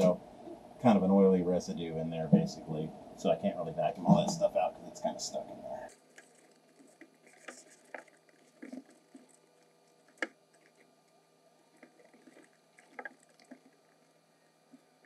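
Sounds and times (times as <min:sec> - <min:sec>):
insulation rustling and tapping: 0:05.9 - 0:10.9.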